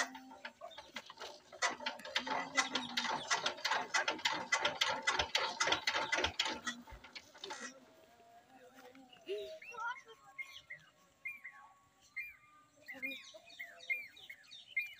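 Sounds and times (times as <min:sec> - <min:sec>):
engine being turned over by hand: 0:00.0 - 0:07.9.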